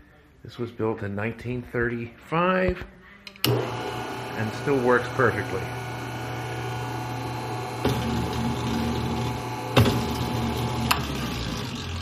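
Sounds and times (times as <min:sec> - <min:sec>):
stand mixer motor humming: 0:03.5 - 0:12.0.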